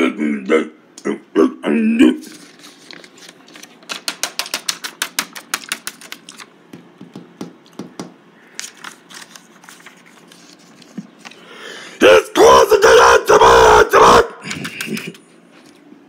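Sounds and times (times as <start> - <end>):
paper cards clicking and tapping: 2.3 - 11.4.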